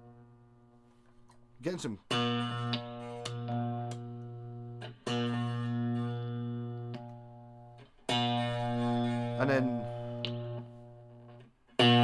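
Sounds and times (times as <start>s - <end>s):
guitar switch clicks: 2.1s - 5.3s, 6.7s - 7.2s, 9.9s - 10.7s
electric guitar low note ringing: 2.1s - 12.0s.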